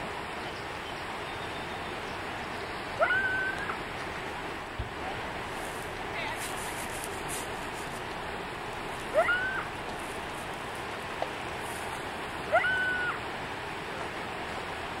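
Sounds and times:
steady rushing noise: 1.9 - 15.0
short upward-sweeping animal calls: 3.0 - 3.8, 9.1 - 9.7, 12.5 - 13.2.

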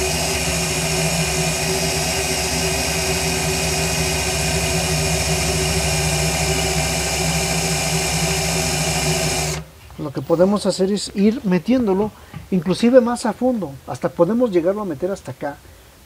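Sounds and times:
cordless drill boring into steel: 0.0 - 9.6.

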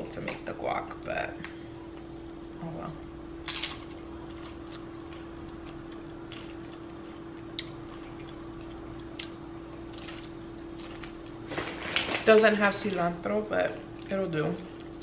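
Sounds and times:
tortilla chips crunching: 3.4 - 12.3.

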